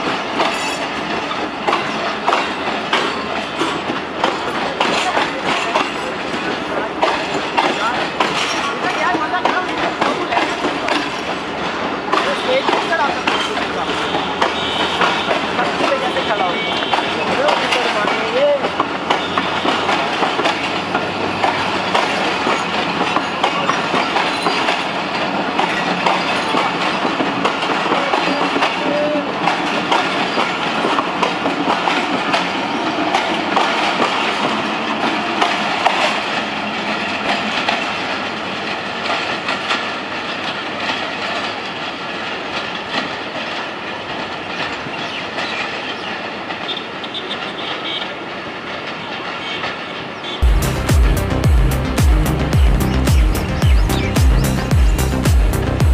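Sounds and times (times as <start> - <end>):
train wheels clattering over rails: 0.0 - 50.2.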